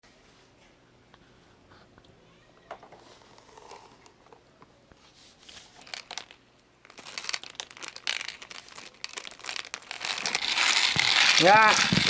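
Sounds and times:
candies falling into plastic drum: 5.8 - 12.0
plastic wrapper crinkling: 5.8 - 12.0.

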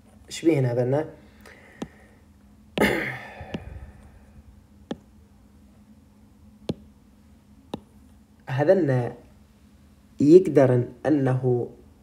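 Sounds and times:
sharp breath out: 1.2 - 2.2, 3.0 - 4.3
stylus tapping on glass screen: 2.8 - 3.8, 6.7 - 6.9, 7.7 - 7.9.

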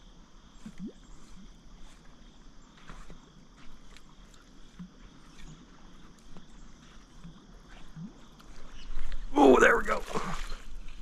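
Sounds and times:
light knocks and clicks of kayak: 1.8 - 9.2.

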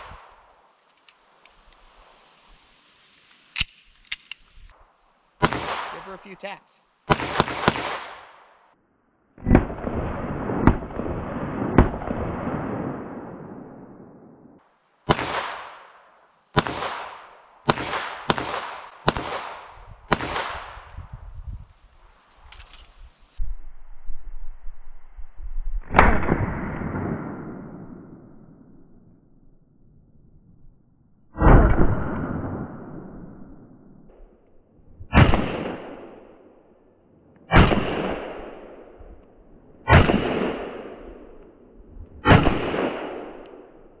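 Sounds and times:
pistol shots echoing: 5.4 - 6.3, 7.1 - 8.4, 15.1 - 15.8, 16.6 - 20.8.

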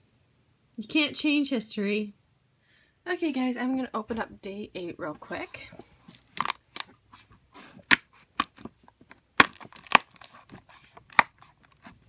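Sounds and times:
cardboard crackling and tearing: 9.4 - 12.0.

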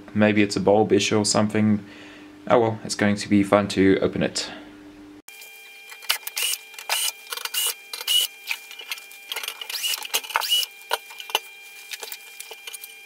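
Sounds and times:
cordless drill whirring: 6.3 - 8.3, 9.6 - 10.8.

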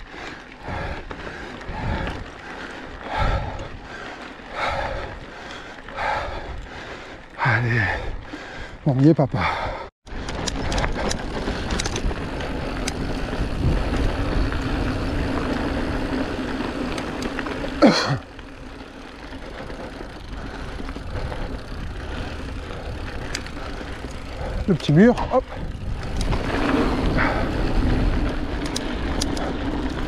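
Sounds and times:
bike rattling clicks: 0.0 - 7.4, 10.1 - 30.0
bike tyre rumble on dirt: 0.0 - 30.0
wind on microphone: 10.6 - 15.1, 24.5 - 29.2.

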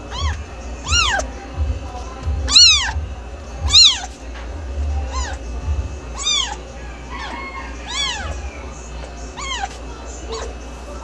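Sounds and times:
cat meowing: 0.0 - 1.3, 2.4 - 3.0, 3.6 - 4.2, 5.1 - 5.4, 6.2 - 10.6.

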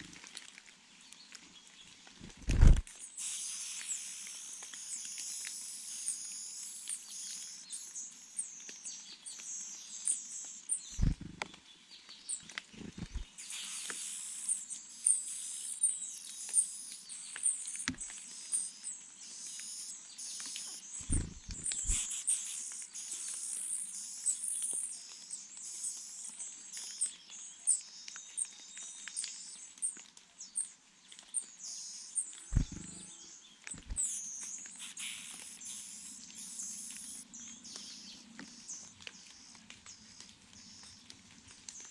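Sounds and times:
nestlings high chirps: 2.3 - 11.4, 12.3 - 30.0, 31.4 - 41.0
dull low thumps: 11.0 - 11.4, 12.8 - 13.2, 21.0 - 22.0, 32.6 - 33.0, 33.8 - 34.0.

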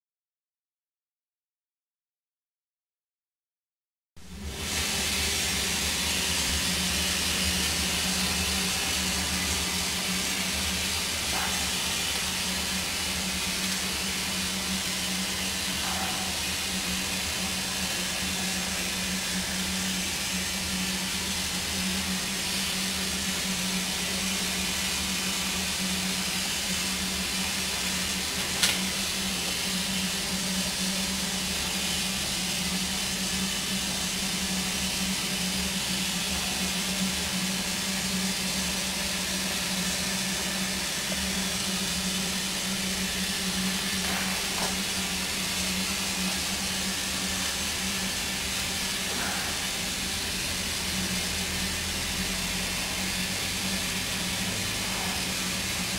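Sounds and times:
steady low hum: 4.2 - 55.9
steam locomotive hissing: 4.2 - 55.9
sharp click: 28.6 - 28.8.

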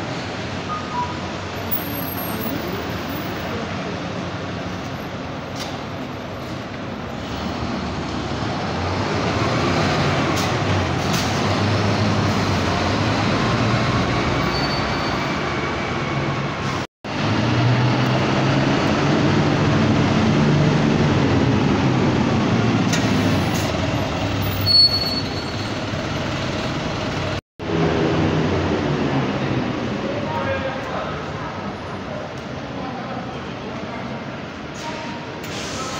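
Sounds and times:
diesel bus engines droning: 0.0 - 35.9
high squeal: 14.3 - 15.8, 24.3 - 25.9.

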